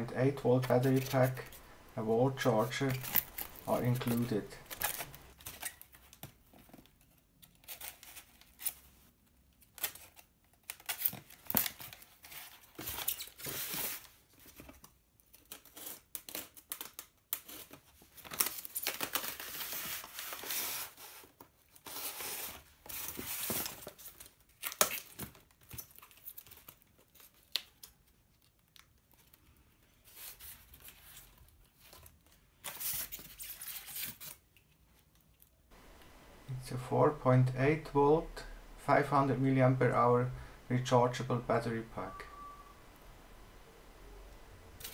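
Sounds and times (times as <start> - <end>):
packaging rustling: 0.4 - 6.3.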